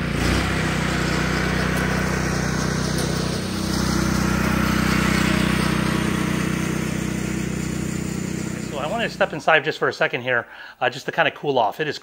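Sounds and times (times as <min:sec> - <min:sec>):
reel mower engine mowing grass: 0:00.0 - 0:09.4.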